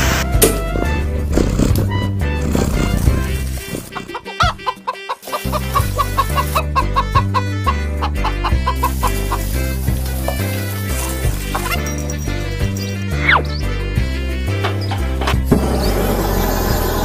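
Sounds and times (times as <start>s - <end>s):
background music with bass beat: 0.0s - 16.0s
hen clucking: 2.9s - 10.4s.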